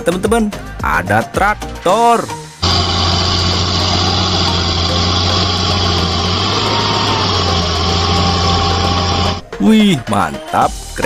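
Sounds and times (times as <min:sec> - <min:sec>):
tractor diesel engine droning: 0:02.6 - 0:09.4.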